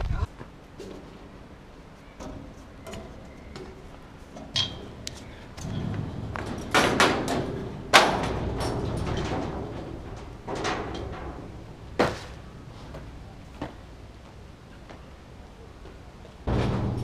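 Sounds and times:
thuds and clanks on metal railing: 2.2 - 5.0, 5.6 - 13.8, 16.4 - 17.0.

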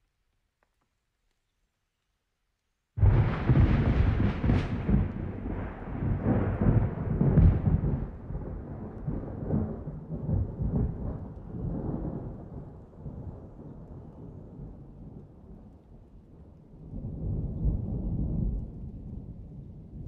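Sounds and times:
rain: 0.0 - 20.0
rolling thunder: 3.0 - 15.3, 16.9 - 20.0.

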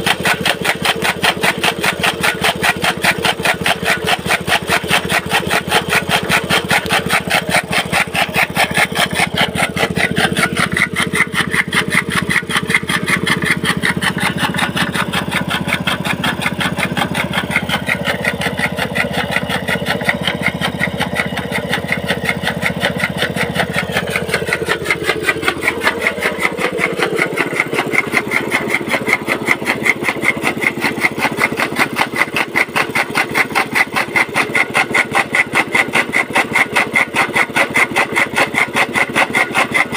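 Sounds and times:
chaff cutter chopping fodder: 0.0 - 39.9
small petrol engine running: 0.0 - 39.9.

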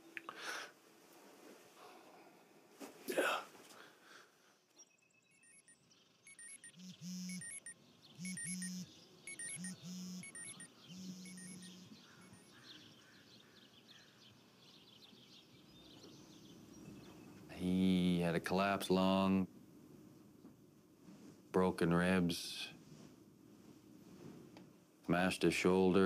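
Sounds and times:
high electronic beeps: 4.8 - 12.6
phone vibration buzzing: 6.3 - 12.6.

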